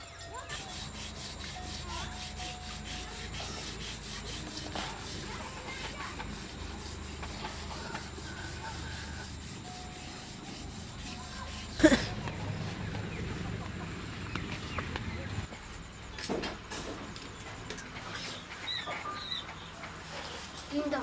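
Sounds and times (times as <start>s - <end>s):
hand scrubbing a cooking pot: 0.3s - 12.7s.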